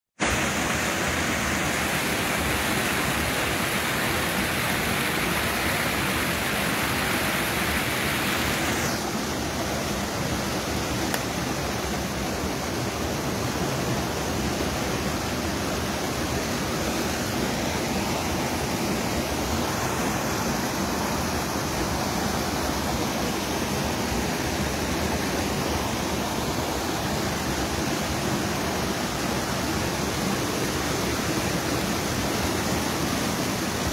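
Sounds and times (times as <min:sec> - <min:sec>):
river water rushing over rocks: 0:00.2 - 0:33.9.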